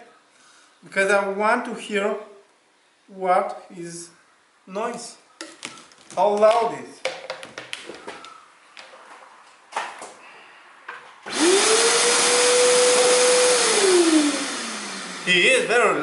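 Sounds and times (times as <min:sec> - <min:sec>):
vacuum cleaner motor whining: 0:11.3 - 0:15.4.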